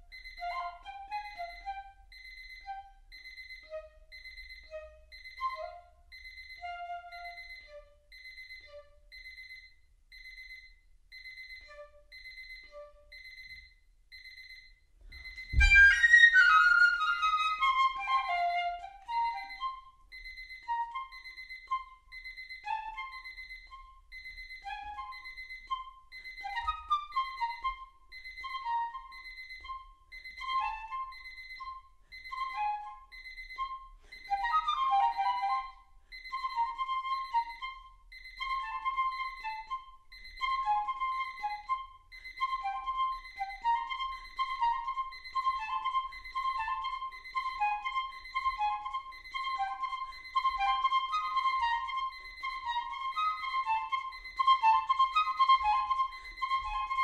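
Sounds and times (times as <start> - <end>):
alarm clock electronic beep: 0.0 - 57.0
piccolo playing short notes: 15.5 - 20.0.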